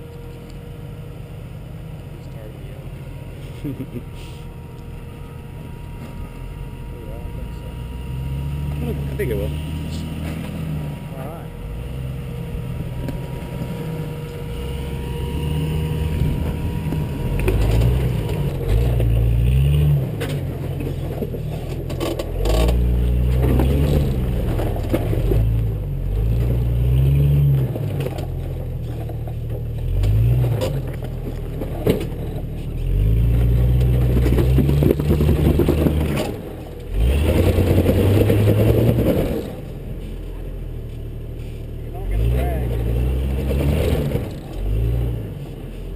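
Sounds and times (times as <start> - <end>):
tires scraping on rocks: 2.1 - 45.9
engine revving: 2.2 - 40.1, 41.4 - 45.9.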